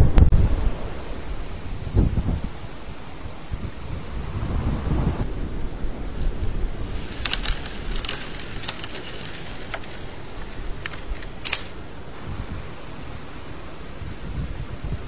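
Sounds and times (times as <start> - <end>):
wind buffeting microphone: 0.0 - 15.0
small birds chirping: 0.4 - 5.2, 12.2 - 15.0.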